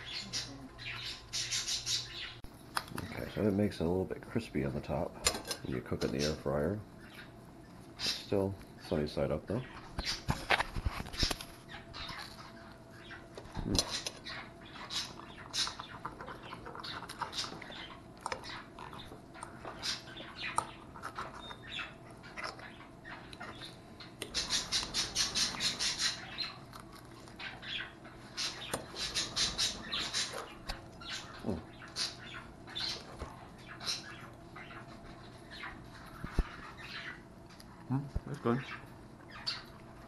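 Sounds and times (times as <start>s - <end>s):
chewing: 11.2s - 29.4s.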